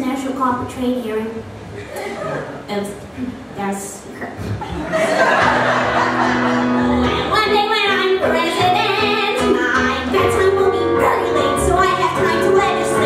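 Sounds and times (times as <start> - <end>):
keyboard chords: 5.3 - 13.0
woman singing: 7.0 - 13.0.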